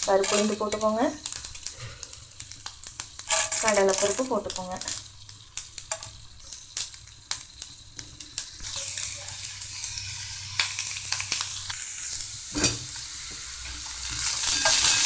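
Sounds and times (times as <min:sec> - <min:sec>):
seeds crackling in hot oil: 0:00.0 - 0:15.0
vegetables sizzling in oil: 0:00.0 - 0:15.0
steel spatula stirring: 0:03.2 - 0:04.2, 0:14.1 - 0:15.0.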